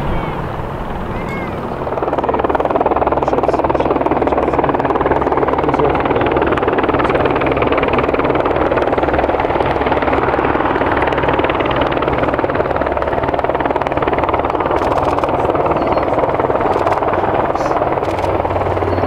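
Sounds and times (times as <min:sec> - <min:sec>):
turboprop aircraft taking off: 0:00.0 - 0:19.0.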